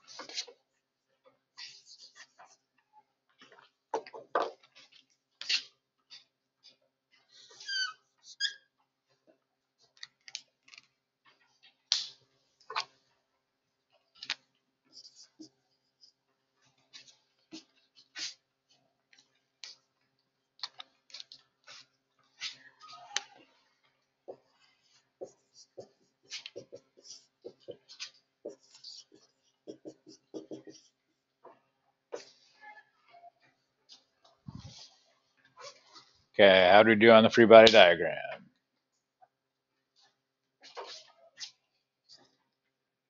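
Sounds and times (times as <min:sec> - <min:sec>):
marker squeaking on whiteboard: 0:00.1 - 0:00.8, 0:01.5 - 0:02.8, 0:03.4 - 0:09.0, 0:14.0 - 0:20.0, 0:20.6 - 0:36.2, 0:39.9 - 0:42.4
marker scratchy strokes: 0:14.9 - 0:18.4, 0:24.3 - 0:31.0.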